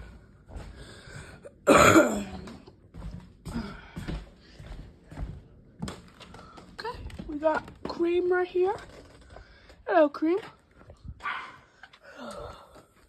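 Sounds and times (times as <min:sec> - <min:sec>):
person clearing throat: 0:01.6 - 0:02.5.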